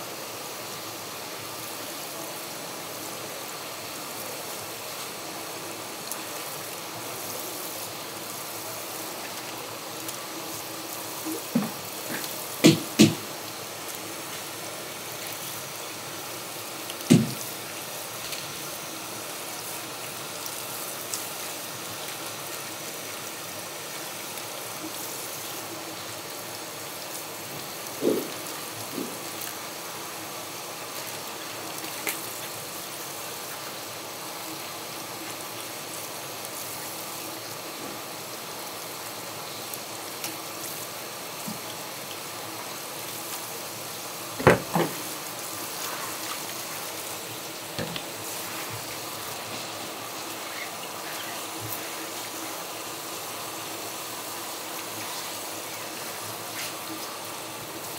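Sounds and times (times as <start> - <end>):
running water from tap: 3.1 - 57.9
sharp knocks: 12.6 - 13.2, 17.1 - 17.4, 44.4 - 45.0.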